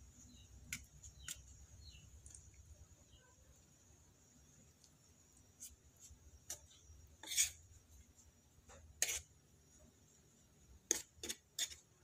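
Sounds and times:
metal spoon scraping a plate: 6.5s - 7.7s, 9.0s - 9.4s, 10.9s - 12.0s.

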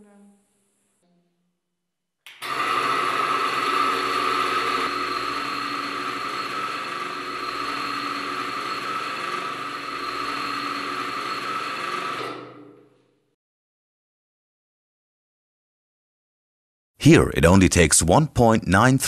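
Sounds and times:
electric motor running: 2.4s - 12.4s.

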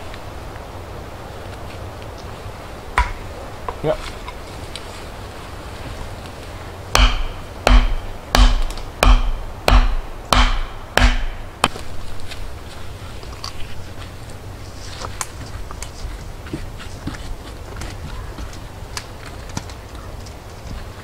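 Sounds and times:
wooden stake being pounded: 3.0s - 3.8s, 6.9s - 11.9s.

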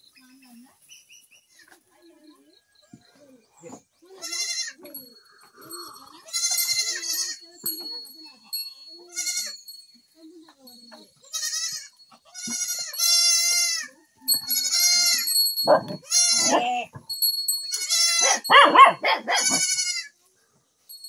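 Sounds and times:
goat kids bleating: 4.1s - 9.7s, 11.1s - 20.2s.

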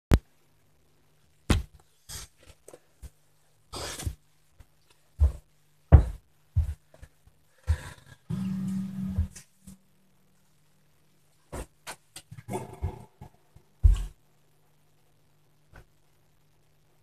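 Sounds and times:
faint low hum: 0.1s - 17.0s
thumping footsteps: 3.8s - 8.0s, 11.5s - 14.2s.

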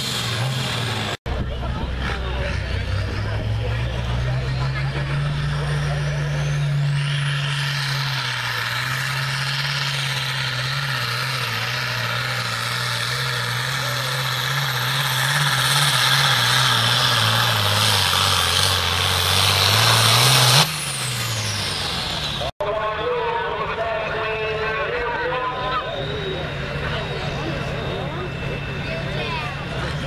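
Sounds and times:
diesel tractor engine at full throttle: 0.0s - 30.0s
high whine winding down: 24.1s - 30.0s.

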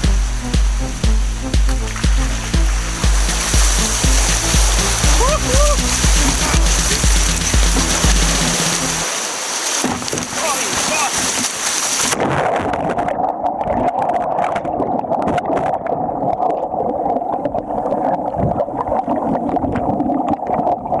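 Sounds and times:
breaking surf and rushing whitewater: 0.0s - 12.9s
muffled underwater churning: 0.0s - 21.0s.

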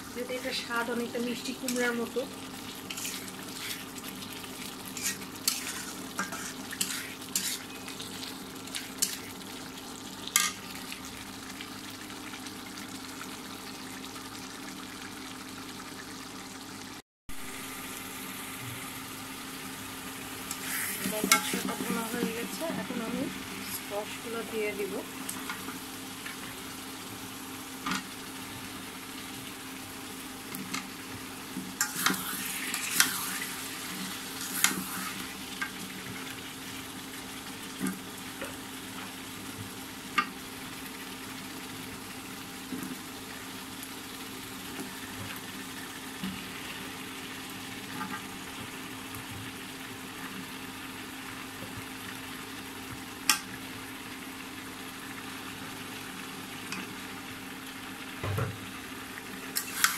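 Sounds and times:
squash sizzling in oil: 0.0s - 59.9s
metal spatula scraping pan: 2.9s - 3.8s, 5.0s - 7.8s.

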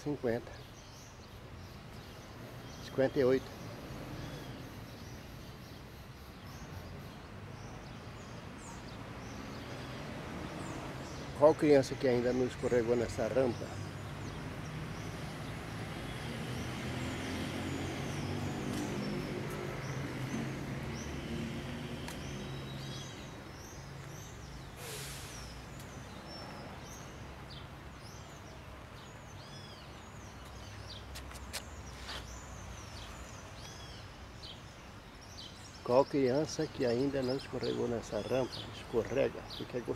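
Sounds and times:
birds chirping: 0.0s - 39.9s
road traffic rumble: 0.0s - 39.9s
short hiss: 24.8s - 25.7s.

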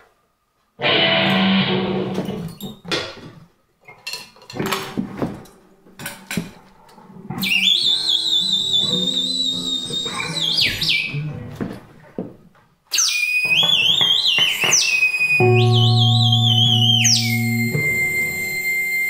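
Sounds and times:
high wavering whistling tone: 7.4s - 11.1s, 13.0s - 19.0s
electric guitar plucks and knocks: 15.4s - 19.0s.

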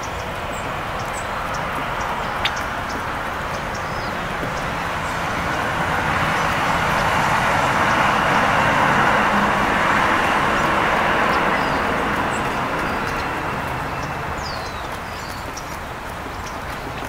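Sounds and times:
faint songbird chirps: 0.0s - 5.2s, 11.3s - 17.0s
background traffic rush: 0.0s - 17.0s.

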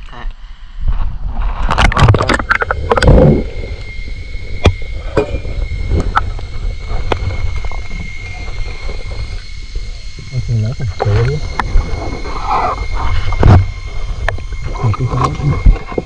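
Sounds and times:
faint high whine: 0.0s - 16.0s
underwater low rumble: 0.0s - 16.0s.

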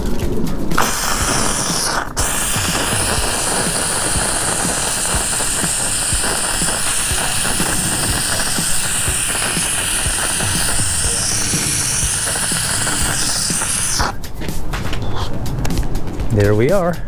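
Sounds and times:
steam gun hissing: 0.8s - 14.2s.

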